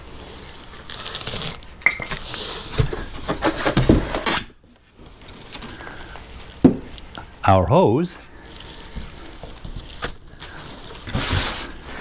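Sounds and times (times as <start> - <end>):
styrofoam and cardboard rustling: 0.0 - 5.1, 8.6 - 12.0.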